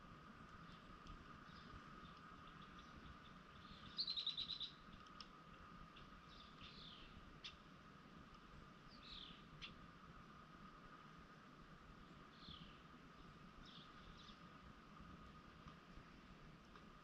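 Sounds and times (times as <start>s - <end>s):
faint steady tone: 0.0s - 17.0s
songbird trill: 0.6s - 5.1s, 5.9s - 7.7s, 8.8s - 9.8s, 12.0s - 14.6s.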